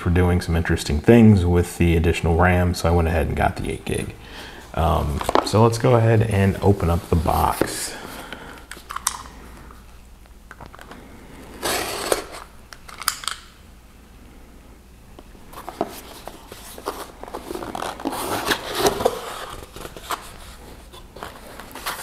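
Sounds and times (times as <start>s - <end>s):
cardboard scraping and rustling: 6.4s - 7.9s, 11.5s - 12.5s, 15.5s - 22.0s.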